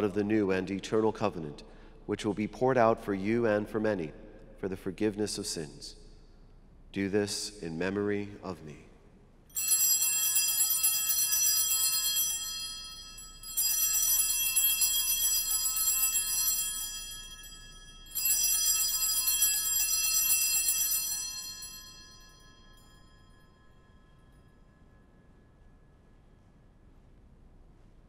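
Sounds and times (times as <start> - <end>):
small hand bells jangling: 9.5 - 24.4.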